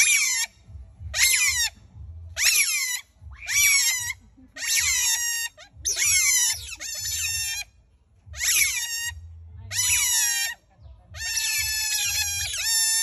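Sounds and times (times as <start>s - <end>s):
otters squealing: 0.0s - 1.8s, 2.4s - 7.7s, 8.4s - 10.6s, 11.2s - 13.0s.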